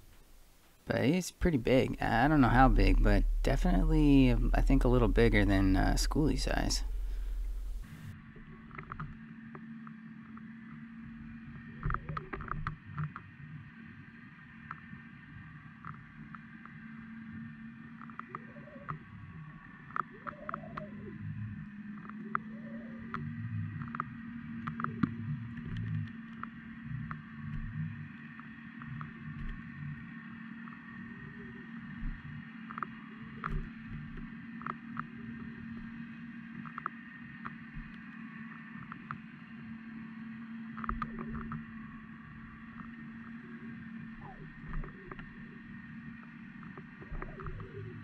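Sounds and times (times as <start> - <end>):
low underwater hum: 0.0 - 48.0
low rising and falling calls: 1.6 - 8.1.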